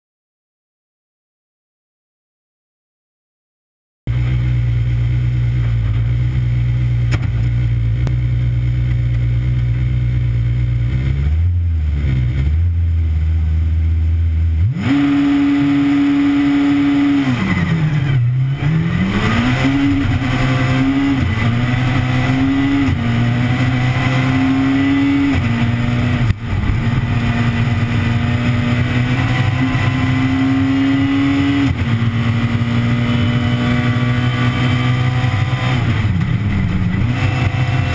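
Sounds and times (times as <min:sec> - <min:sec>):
rally car engine revving: 0:04.1 - 0:37.9
sharp knock: 0:07.1 - 0:07.4.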